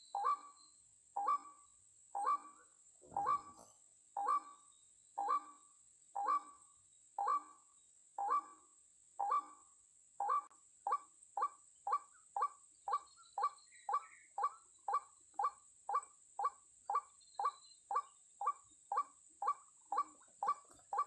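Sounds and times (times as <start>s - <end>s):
waterhen calling: 2.2s - 3.6s, 5.2s - 5.5s, 10.2s - 21.0s.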